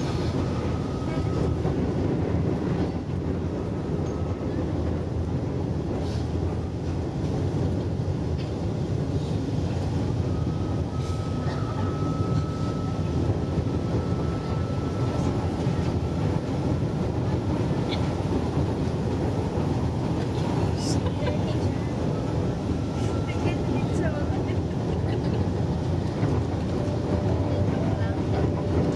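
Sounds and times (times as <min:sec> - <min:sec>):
train wheels and motors rumbling: 0:00.0 - 0:28.9.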